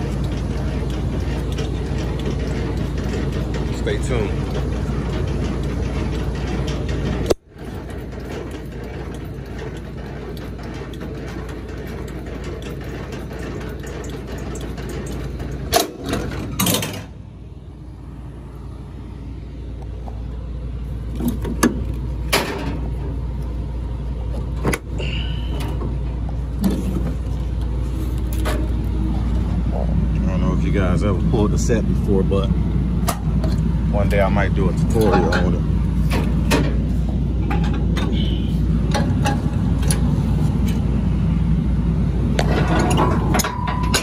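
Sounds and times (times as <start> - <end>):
metallic knocks and clanks: 0.0 - 17.2, 21.2 - 23.2, 33.0 - 40.8, 42.4 - 44.0
diesel truck idling: 0.0 - 43.9.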